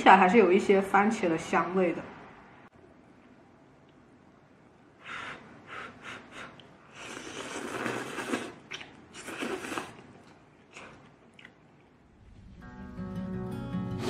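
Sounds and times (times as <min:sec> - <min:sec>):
person slurping noodles: 0:05.9 - 0:10.1.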